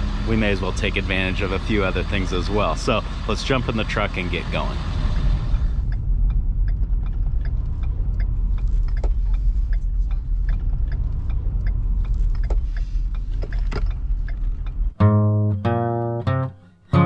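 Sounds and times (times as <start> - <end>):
road and engine rumble: 0.0 - 16.2
light clicks and rattles: 5.8 - 15.0.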